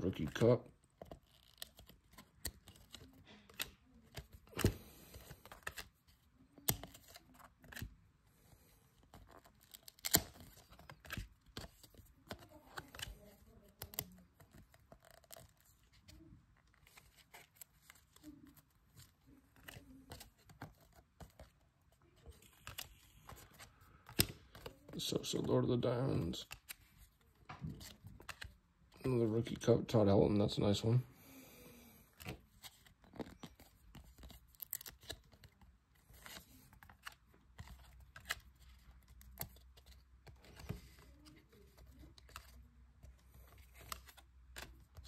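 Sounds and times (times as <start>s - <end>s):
cards sliding against cards: 1.0s - 6.0s, 6.6s - 13.2s, 32.0s - 45.0s.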